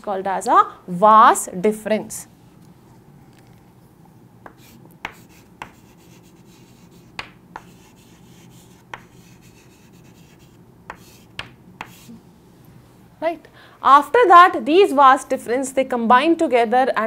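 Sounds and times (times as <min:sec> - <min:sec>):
chalk tapping on chalkboard: 0:04.4 - 0:12.2
chalk scratching: 0:04.5 - 0:12.2.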